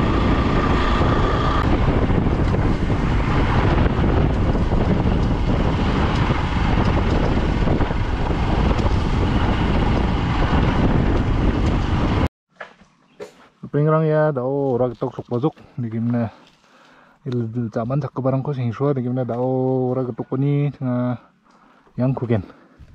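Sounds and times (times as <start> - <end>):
motorcycle engine running: 0.0 - 12.3
wind rumble on microphone: 0.0 - 12.3.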